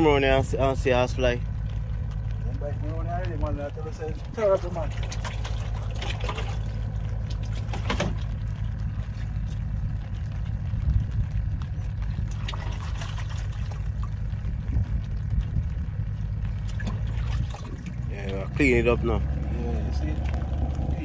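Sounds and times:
low rumble: 0.0 - 21.0
scraping splashes: 0.0 - 21.0
water sloshing in plastic bucket: 4.5 - 10.2, 12.0 - 15.2, 16.4 - 18.1.

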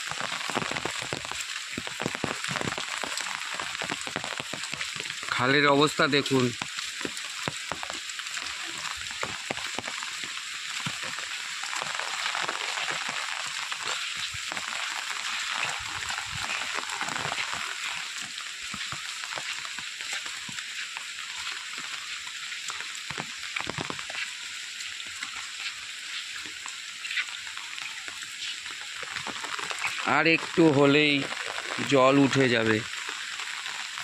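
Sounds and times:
heavy rain on water and foliage: 0.0 - 34.0.

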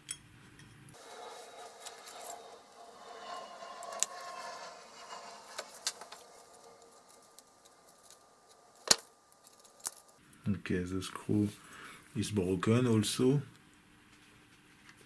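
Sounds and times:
metal parts scraping: 1.0 - 10.2.

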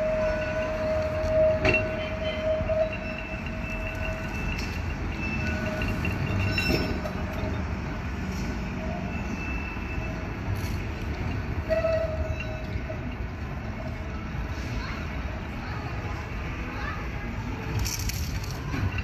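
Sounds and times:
tram rumbling on rails: 0.0 - 19.0
tram wheels squealing: 0.0 - 19.0.

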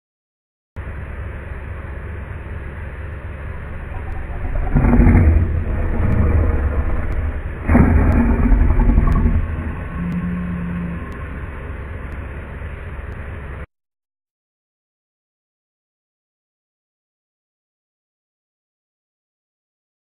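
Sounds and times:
lion roaring: 3.6 - 11.6.

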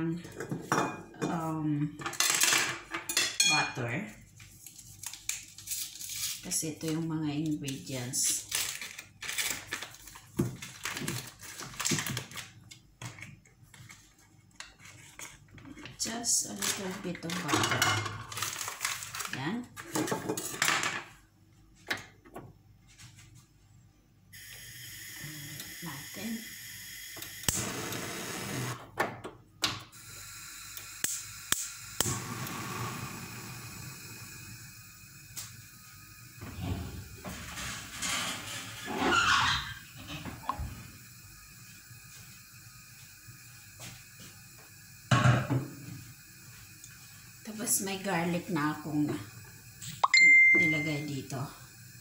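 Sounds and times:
paper wrapper rustling: 4.3 - 6.4, 7.7 - 12.8, 18.2 - 19.4.

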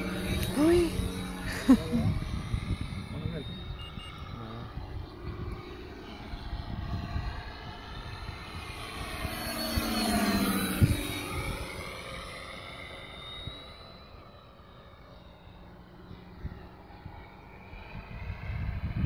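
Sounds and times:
model plane engine sound: 0.0 - 19.0
propeller noise: 0.0 - 19.0.

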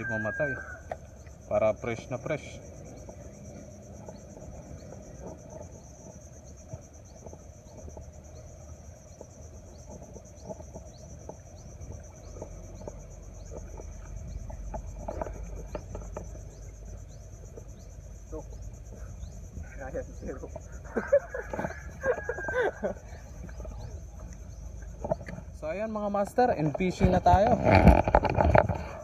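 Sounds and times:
insects droning: 0.0 - 29.0.

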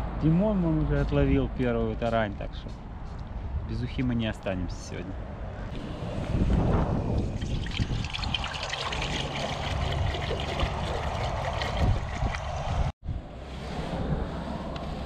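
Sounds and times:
water pouring into a metal pot: 7.4 - 12.5.

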